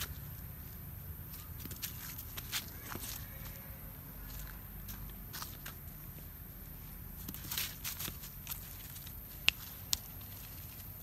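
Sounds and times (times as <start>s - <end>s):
rustling in dry leaves: 0.0s - 11.0s.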